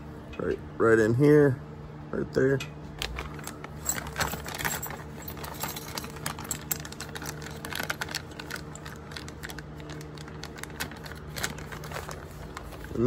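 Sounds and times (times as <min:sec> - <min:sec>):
plastic bag crinkling: 0:03.0 - 0:13.0
metal hardware clinking: 0:03.4 - 0:08.1.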